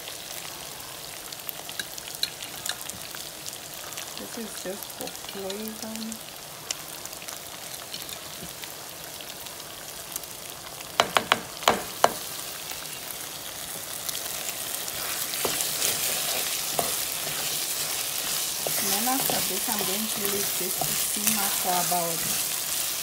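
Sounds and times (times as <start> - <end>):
meat sauce sizzling in a pot: 0.0 - 23.0
sharp knocks: 11.0 - 12.2
wooden spoon stirring: 14.9 - 23.0.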